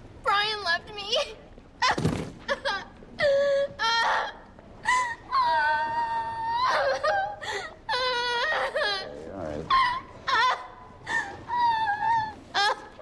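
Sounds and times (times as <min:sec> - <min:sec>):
woman crying and wailing: 0:01.8 - 0:13.0.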